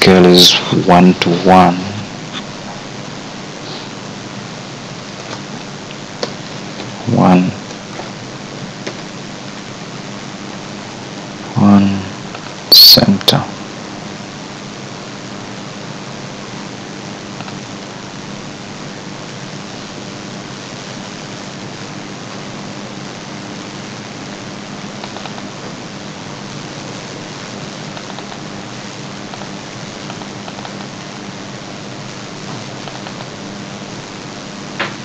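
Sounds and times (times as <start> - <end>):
low steady hum: 0.0 - 35.0
microphone hiss: 0.0 - 35.0
faint mouse clicks: 17.4 - 17.6, 25.0 - 25.5.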